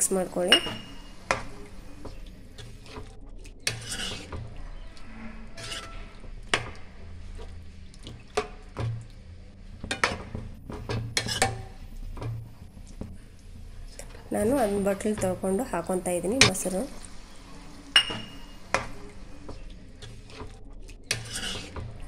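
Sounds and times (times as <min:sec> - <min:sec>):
spoon clinking against pan: 0:00.5 - 0:01.1, 0:18.0 - 0:18.9
spoon scraping wet food in pan: 0:00.5 - 0:15.7, 0:17.9 - 0:22.0.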